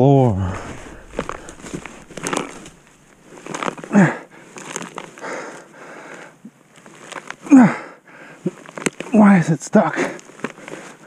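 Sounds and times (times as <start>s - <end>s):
rotten wood cracking and crumbling: 0.0s - 7.6s, 8.4s - 9.4s, 10.0s - 11.0s
person grunting: 0.2s - 1.6s.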